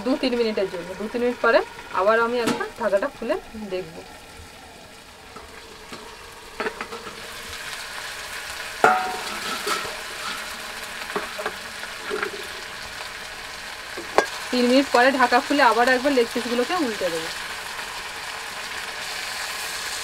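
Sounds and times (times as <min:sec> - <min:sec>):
chicken sizzling in oil: 0:00.0 - 0:20.0
steel lid clanking: 0:02.4 - 0:02.8, 0:05.3 - 0:07.3, 0:08.8 - 0:12.8, 0:13.9 - 0:14.4.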